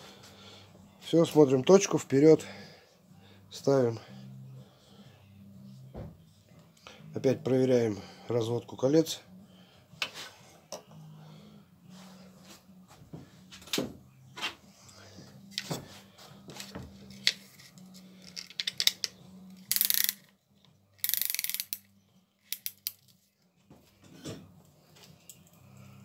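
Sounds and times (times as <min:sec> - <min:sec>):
metal tool clicks and knocks: 0:18.3 - 0:20.2, 0:22.5 - 0:23.1
ratcheting bursts: 0:19.7 - 0:20.2, 0:21.0 - 0:21.8.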